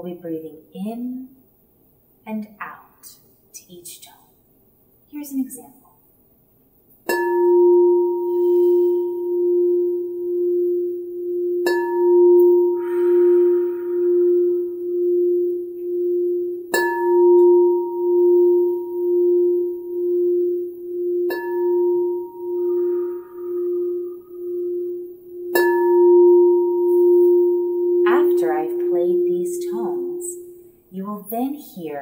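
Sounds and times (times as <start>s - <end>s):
singing bowl struck with mallet: 7.1s - 30.8s
singing bowl ringing tone: 7.1s - 30.9s.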